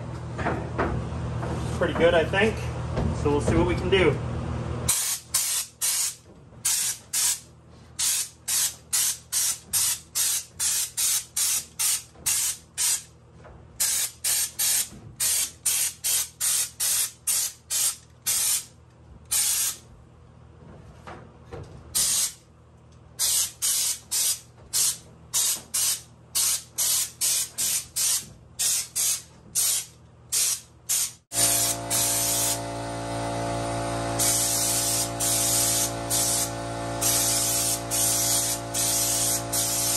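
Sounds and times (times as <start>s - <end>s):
spray gun air bursts: 4.9s - 7.4s, 8.0s - 13.1s, 13.8s - 18.7s, 19.3s - 19.8s, 22.0s - 22.4s, 23.2s - 39.9s
machine hum: 31.3s - 39.9s.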